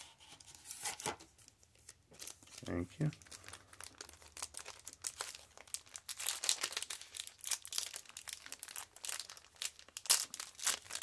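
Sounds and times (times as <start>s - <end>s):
cards crinkling and rustling: 0.1s - 11.0s.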